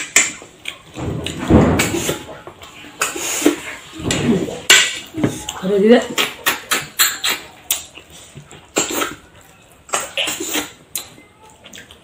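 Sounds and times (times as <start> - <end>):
mouth smacking and chewing: 0.0 - 1.0, 5.4 - 12.0.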